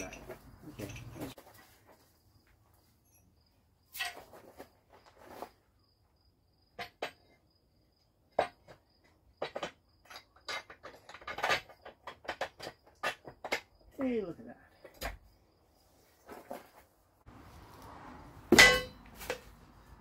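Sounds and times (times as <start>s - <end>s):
metal tools tapping on metal: 0.0s - 1.4s
faint high insect trill: 0.0s - 10.6s.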